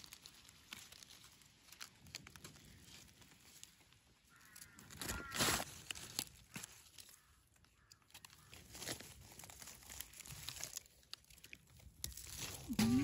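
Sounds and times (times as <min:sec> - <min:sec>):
dry leaves rustling and crackling: 0:00.0 - 0:13.0.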